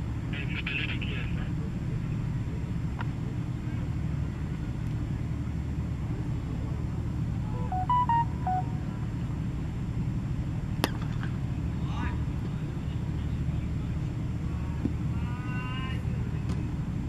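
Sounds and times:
electronic beeps: 7.6 - 9.0.

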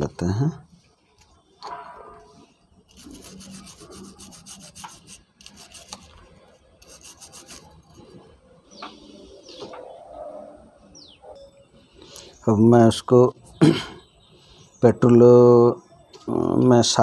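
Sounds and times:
stiff brush scrubbing metal: 2.9 - 6.1, 6.8 - 7.8.

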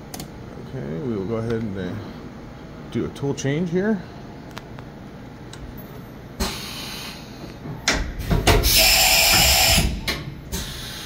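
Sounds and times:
hiss of air: 8.6 - 11.0.

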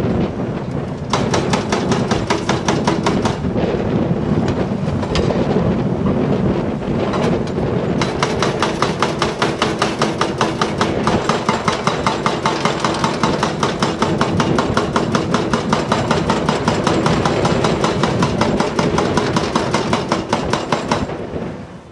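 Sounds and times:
hydraulic breaker hammering rock: 1.1 - 3.5, 8.0 - 21.2.

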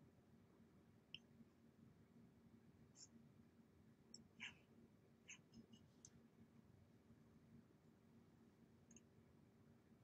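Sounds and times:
faint click: 8.9 - 9.1.

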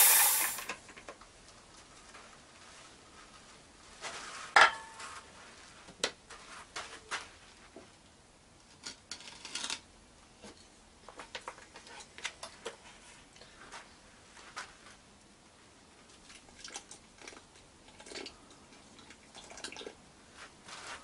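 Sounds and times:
metallic clank with ring: 0.0 - 0.7.

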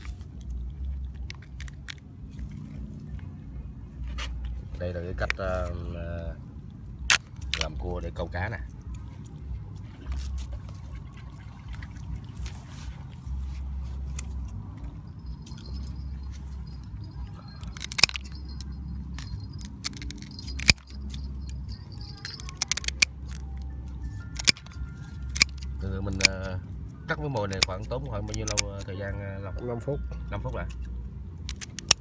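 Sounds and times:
steady low rumble: 0.0 - 32.0
scissors crunching crab shell: 0.4 - 2.1, 17.6 - 18.4, 19.1 - 21.1, 22.1 - 23.6, 24.2 - 26.4, 27.4 - 28.9, 30.7 - 32.0.

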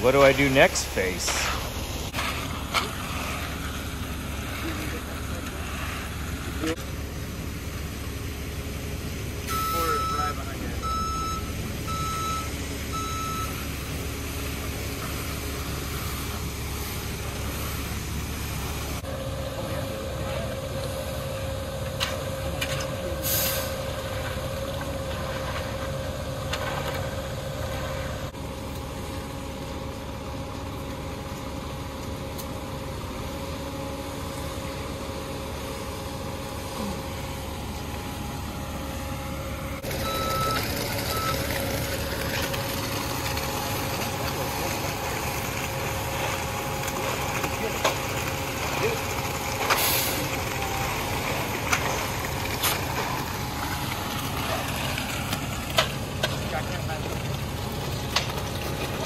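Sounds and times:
diesel truck engine running: 0.0 - 59.0
reversing beeps: 9.5 - 13.6, 40.0 - 41.4
hiss of air: 23.2 - 23.8.

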